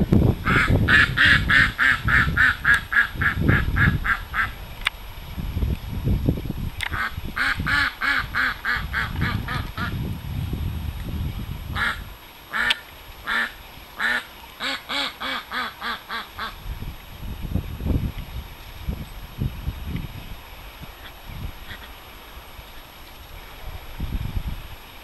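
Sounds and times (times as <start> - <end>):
duck quacking loudly: 0.5 - 4.6, 7.0 - 9.9, 11.8 - 16.6.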